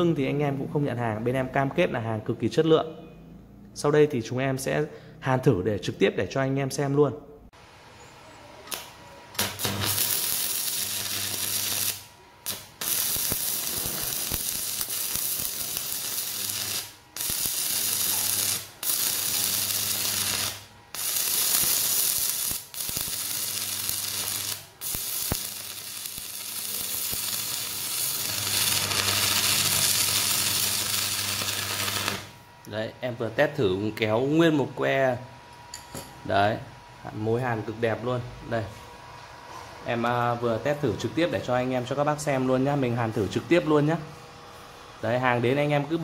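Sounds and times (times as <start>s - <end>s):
welding arc crackling and sizzling: 8.7s - 32.5s.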